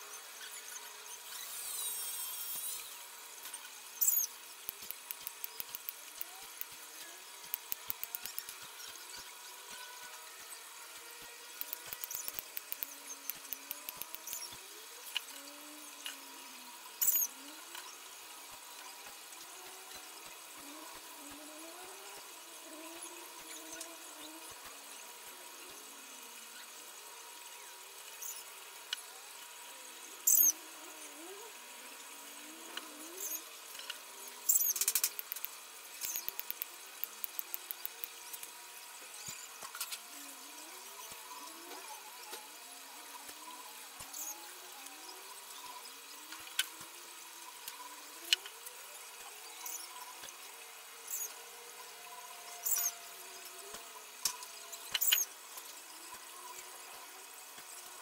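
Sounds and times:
wire clicks: 4.0s - 6.8s, 7.4s - 8.6s, 11.6s - 14.5s, 34.5s - 38.1s.

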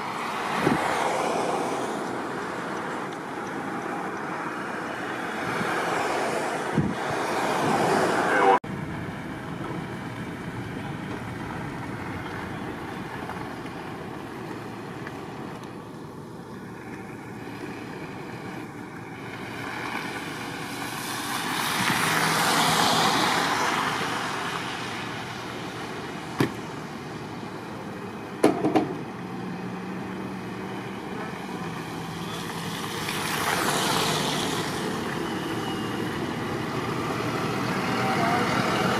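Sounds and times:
road traffic hiss: 0.0s - 38.9s
vehicles passing: 0.0s - 38.9s
sharp knocks: 28.4s - 29.0s.

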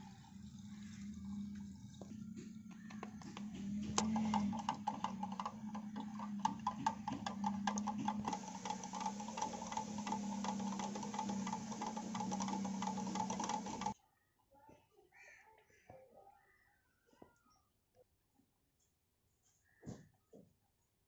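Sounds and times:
steady hum: 3.4s - 14.0s
stick knocking and scraping metal tin: 3.9s - 14.0s.

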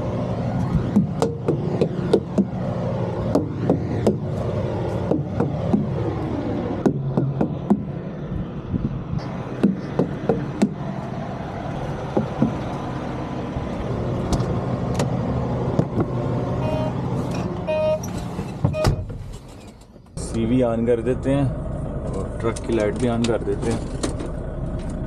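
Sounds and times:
diesel truck engine idling: 0.0s - 25.0s
sharp knocks and clicks: 0.7s - 2.6s, 3.3s - 4.3s, 5.0s - 6.0s, 6.8s - 8.0s, 9.5s - 10.8s, 12.1s - 12.8s.

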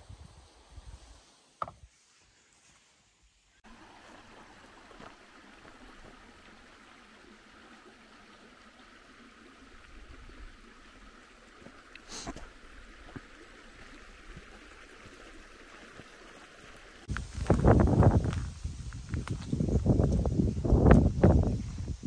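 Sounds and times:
stream rushing over rocks: 3.6s - 18.4s.

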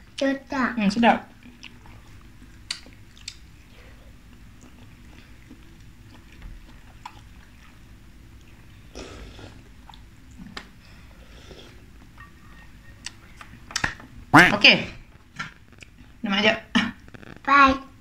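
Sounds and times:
woman chewing food: 1.4s - 14.0s, 15.0s - 16.2s.

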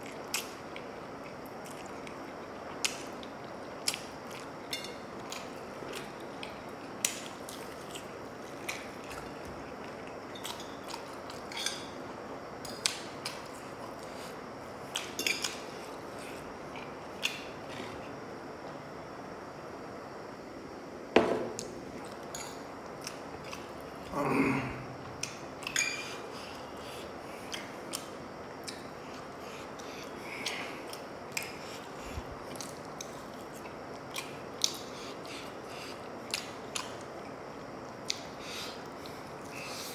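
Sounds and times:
chewing: 0.0s - 11.9s
loud knock: 21.2s - 21.6s.

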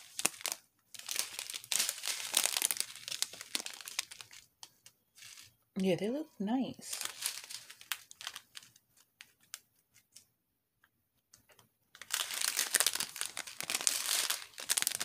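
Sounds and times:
plastic bags crinkling: 0.0s - 5.6s, 6.8s - 9.6s, 11.9s - 15.0s.

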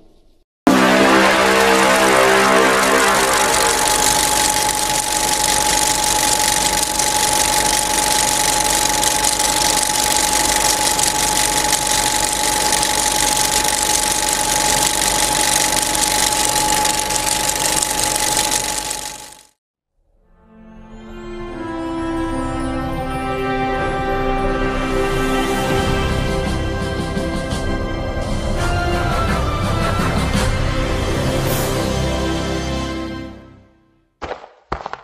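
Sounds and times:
high-pitched tone: 0.7s - 19.4s
film projector whirring: 0.8s - 19.5s.

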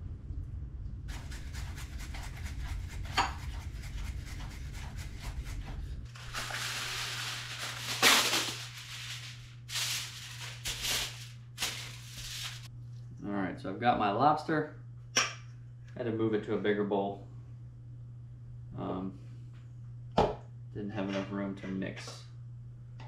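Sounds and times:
aluminum foil crinkling: 6.1s - 12.7s.

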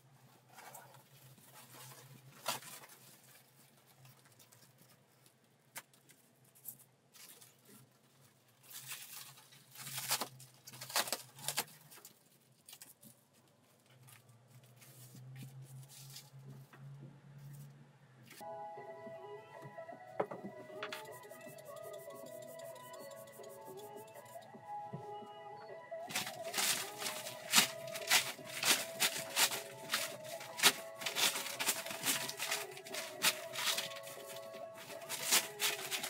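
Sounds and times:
rustling: 0.0s - 18.4s, 26.0s - 36.0s.

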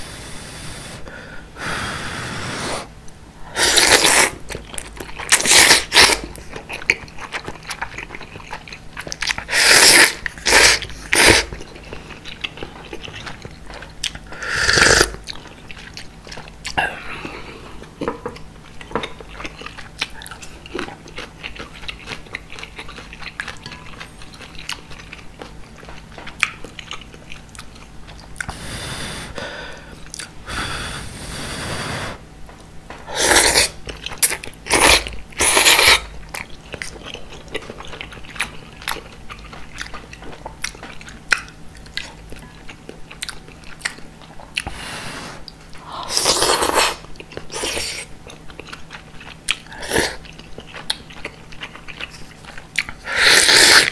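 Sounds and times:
slurping noodles and broth: 1.6s - 2.9s, 3.5s - 4.4s, 9.5s - 11.5s, 14.4s - 15.2s, 33.1s - 33.8s, 53.0s - 53.9s
wet chewing clicks: 3.8s - 17.3s, 18.0s - 28.6s, 33.6s - 44.7s, 45.5s - 53.9s.

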